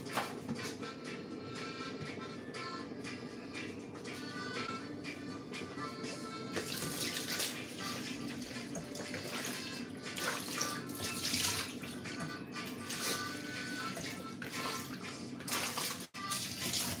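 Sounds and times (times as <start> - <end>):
faint background music: 0.0 - 17.0
tap water splashing in sink: 10.2 - 12.3.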